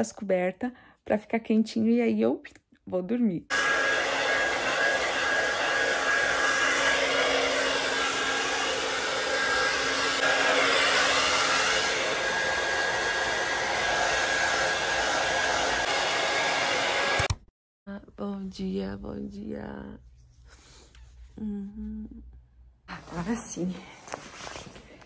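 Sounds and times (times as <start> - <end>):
electric hair dryer running: 3.5 - 17.4.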